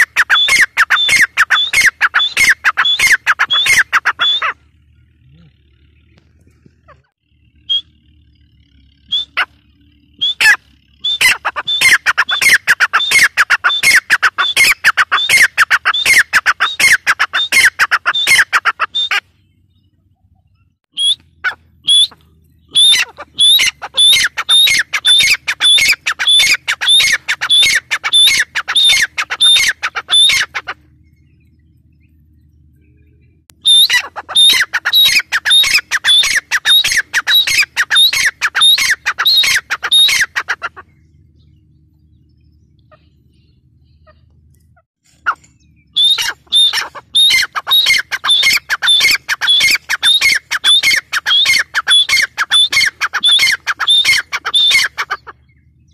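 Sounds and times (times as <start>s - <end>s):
bird calling rapid notes: 0.0s - 19.9s, 20.9s - 55.9s.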